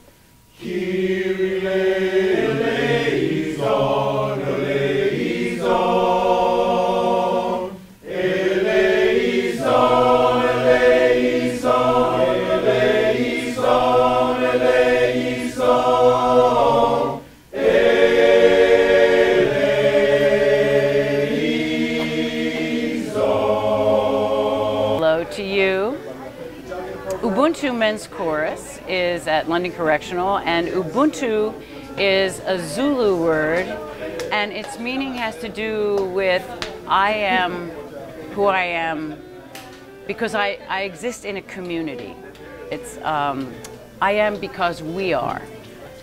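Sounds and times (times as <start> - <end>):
men's choir singing in harmony: 0.6 - 25.3.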